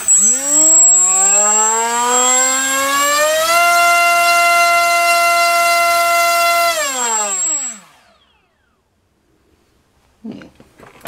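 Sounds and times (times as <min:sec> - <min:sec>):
drone motor high-pitched whine: 0:00.0 - 0:08.8.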